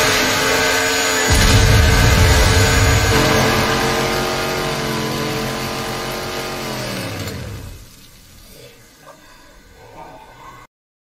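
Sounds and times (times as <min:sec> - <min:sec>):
chainsaw revving: 0:00.0 - 0:07.9.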